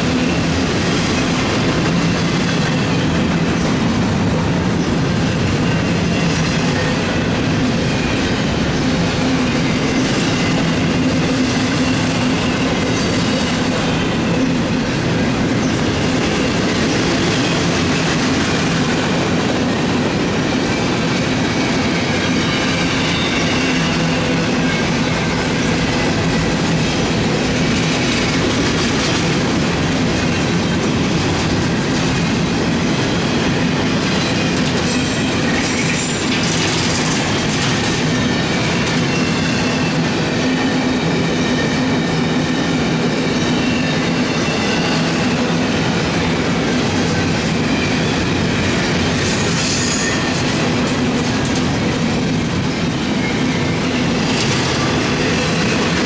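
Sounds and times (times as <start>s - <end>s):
freight train wheels clattering: 0.0s - 56.0s
high wheel squeals: 4.8s - 18.0s, 20.7s - 27.0s, 38.0s - 45.7s, 47.1s - 56.0s.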